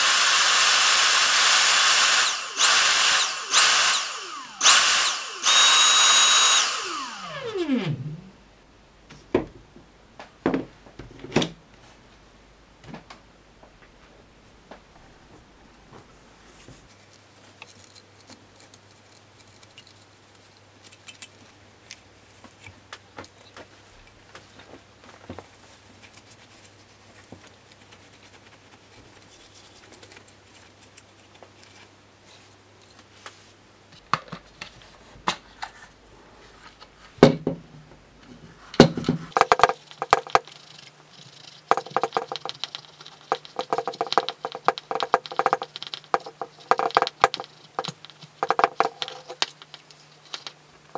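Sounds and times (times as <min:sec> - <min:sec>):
plastic parts clicking and rubbing: 0:16.9 - 0:33.1, 0:38.8 - 0:50.9
plastic knocking: 0:41.7 - 0:49.4.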